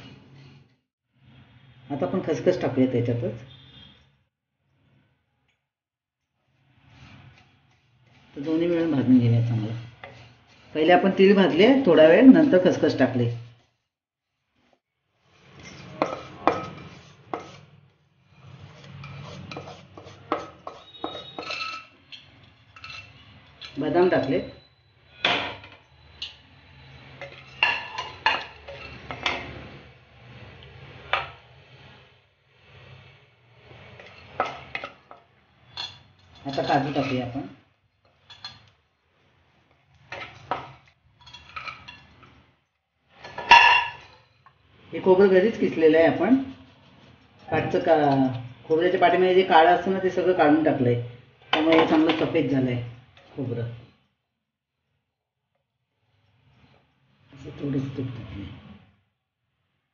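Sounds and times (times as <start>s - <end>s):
spatula scraping seeds from pan: 6.6s - 11.3s, 15.2s - 23.8s
spatula scraping and knocking in pan: 9.4s - 11.5s, 14.6s - 23.8s, 27.1s - 29.8s, 33.6s - 37.3s, 39.6s - 42.4s, 43.1s - 44.5s.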